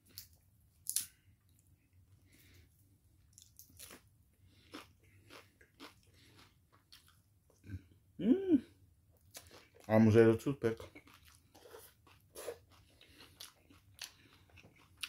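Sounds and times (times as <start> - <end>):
crunchy chewing: 3.3 - 7.6, 10.8 - 15.0
hum-like vocal sound: 8.2 - 8.8.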